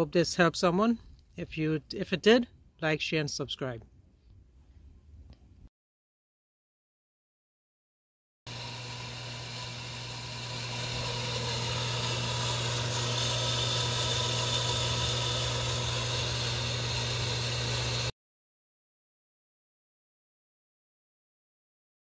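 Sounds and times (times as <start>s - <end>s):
electric pump motor humming: 8.5s - 18.1s.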